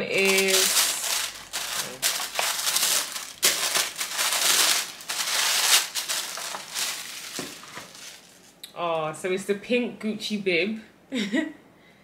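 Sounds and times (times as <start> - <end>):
tissue paper rustling: 0.0 - 8.5.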